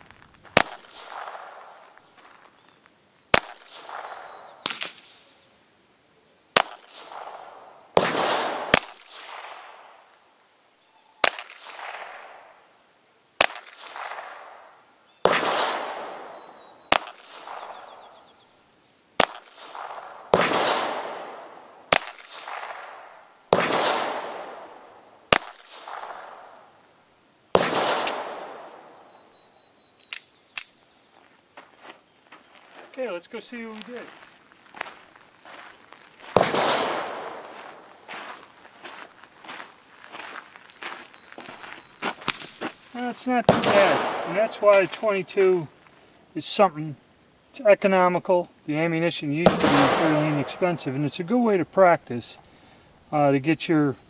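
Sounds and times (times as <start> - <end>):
pistol shots with echo: 0.6 - 1.9, 3.3 - 5.3, 6.6 - 10.0, 11.2 - 12.6, 13.4 - 18.2, 19.2 - 26.7, 27.6 - 29.4, 36.2 - 37.9, 43.0 - 45.7, 49.4 - 51.2.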